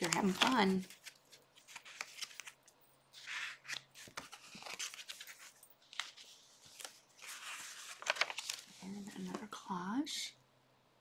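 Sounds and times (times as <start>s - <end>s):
paper pages rustling: 0.0s - 9.6s
page swishing: 3.2s - 8.9s.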